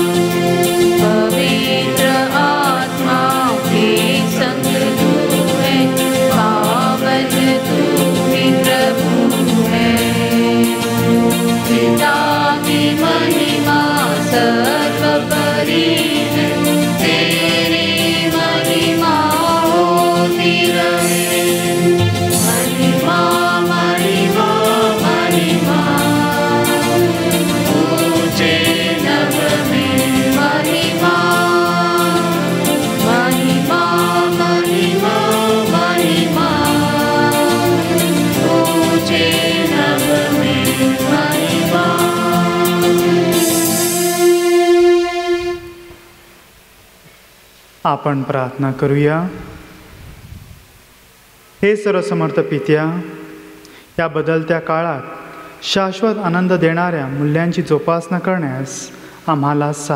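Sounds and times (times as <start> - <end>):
hymn singing with accompaniment: 0.0 - 46.2
long held instrument notes: 0.0 - 46.7.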